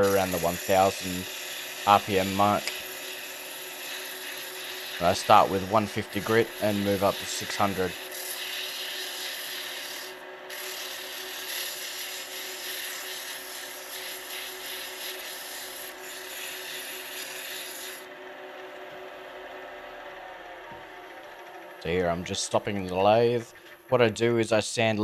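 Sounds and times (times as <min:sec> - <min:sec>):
sandpaper hissing on wood: 0:00.0 - 0:18.0
lathe motor humming: 0:00.0 - 0:23.9.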